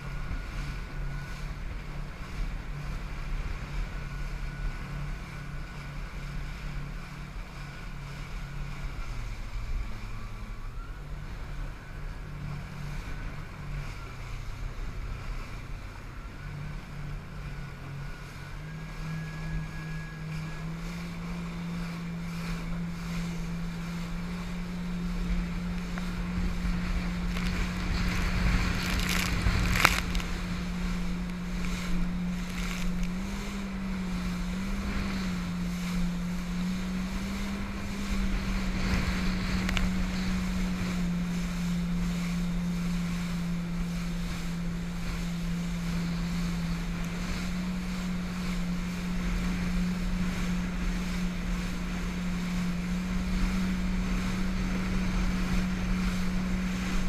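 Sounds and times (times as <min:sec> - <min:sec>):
hull slapping a wave: 0:00.0 - 0:57.0
jet ski engine running: 0:00.0 - 0:57.0
rushing water: 0:00.0 - 0:57.0
wind on microphone: 0:00.0 - 0:57.0.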